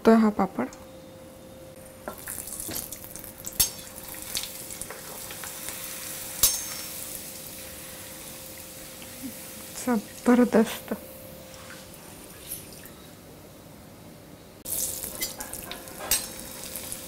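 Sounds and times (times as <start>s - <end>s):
oil sizzling: 1.8s - 13.3s, 14.6s - 17.0s
tongs clicking against pan: 15.2s - 16.4s.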